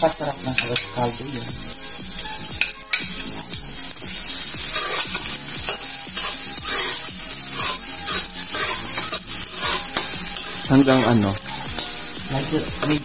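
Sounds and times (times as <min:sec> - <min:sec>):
garlic sizzling in hot oil: 0:00.0 - 0:13.0
metal spoon scraping a pot: 0:01.8 - 0:03.5, 0:04.1 - 0:12.2.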